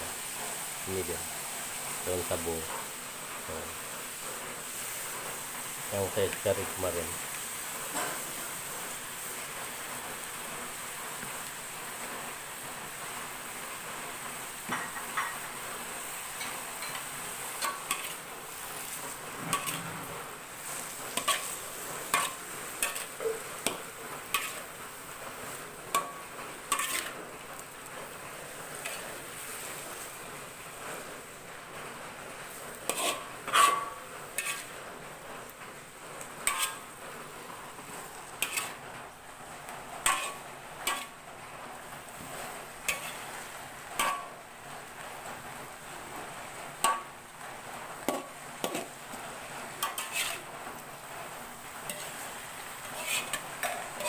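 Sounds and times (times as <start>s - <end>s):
food sizzling: 0.0s - 54.0s
metal spatula scraping wok: 16.3s - 30.2s, 32.4s - 35.0s, 36.2s - 37.0s, 37.8s - 38.9s, 40.0s - 41.2s, 42.0s - 44.4s, 48.0s - 54.0s.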